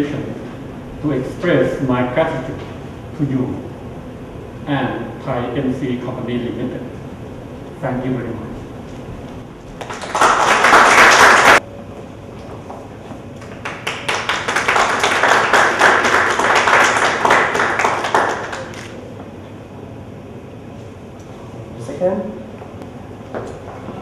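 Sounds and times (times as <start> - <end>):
audience applause: 9.8 - 11.6, 13.4 - 18.9.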